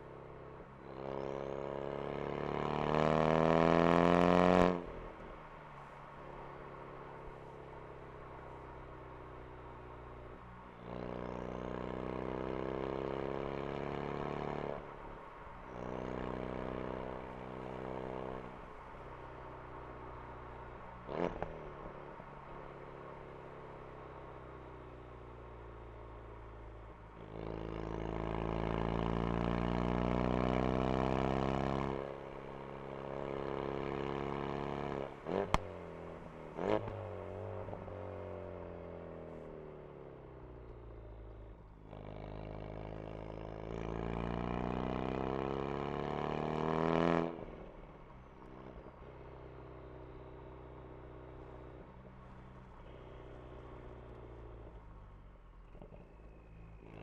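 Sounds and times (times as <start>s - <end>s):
car engine accelerating: 0.0s - 57.0s
exhaust cracks: 35.4s - 35.8s.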